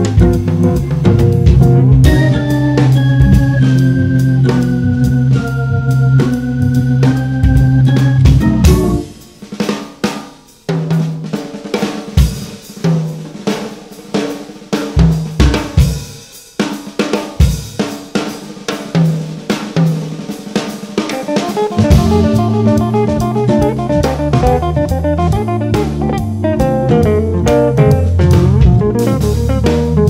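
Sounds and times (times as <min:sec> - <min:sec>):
jazz drum solo: 0:00.0 - 0:30.0
sustained organ tones: 0:00.3 - 0:09.2, 0:21.6 - 0:27.4.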